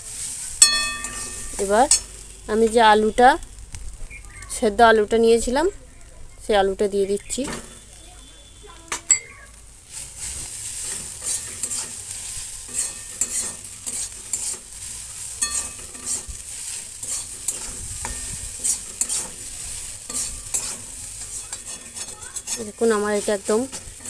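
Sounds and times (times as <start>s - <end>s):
light frying sizzle: 0.0s - 24.0s
metal spatula scraping pan: 0.6s - 2.8s, 9.9s - 24.0s.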